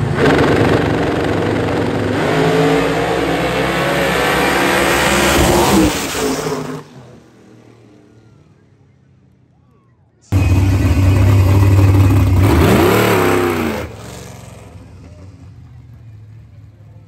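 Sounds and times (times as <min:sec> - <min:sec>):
drag race cars accelerating: 0:00.0 - 0:08.9, 0:10.3 - 0:17.0.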